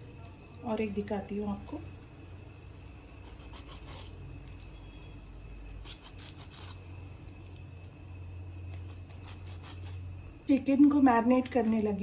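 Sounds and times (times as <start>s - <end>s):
low steady hum: 0.0s - 12.0s
knife scraping raw chicken: 3.0s - 4.2s, 5.6s - 6.9s, 8.7s - 10.2s.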